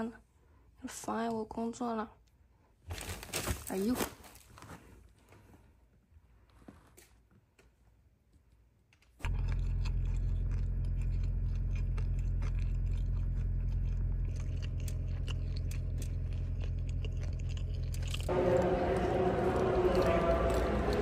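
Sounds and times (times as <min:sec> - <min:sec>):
crisp chewing and crunching: 0:08.9 - 0:18.3
car engine rumble: 0:09.3 - 0:18.4.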